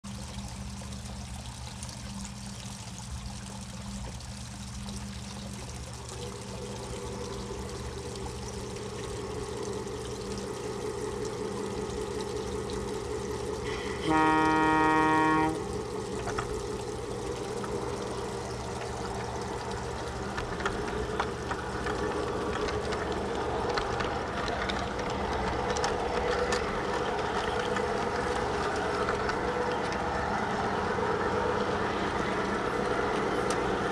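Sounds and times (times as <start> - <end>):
model train engine rumble: 10.6 - 33.9
wheels clicking on track: 12.0 - 33.9
train horn blast: 13.7 - 15.8.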